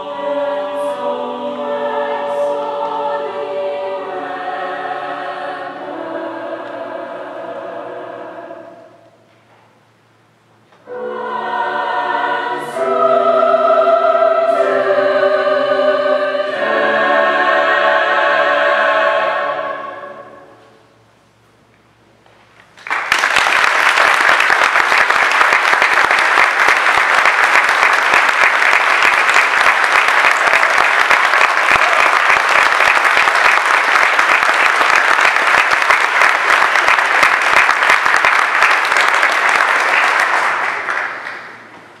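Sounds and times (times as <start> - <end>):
audience applauding: 22.8 - 41.8.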